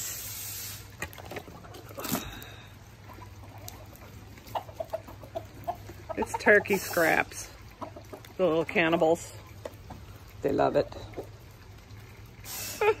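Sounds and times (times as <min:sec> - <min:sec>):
soft chicken clucks: 0:03.0 - 0:08.4
chickens scratching in leaf litter: 0:03.1 - 0:07.4.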